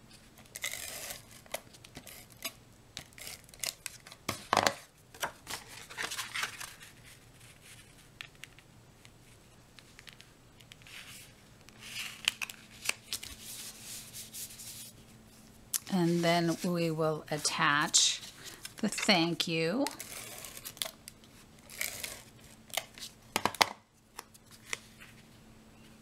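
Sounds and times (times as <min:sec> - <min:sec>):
paper sliding and rustling: 0:05.5 - 0:08.1.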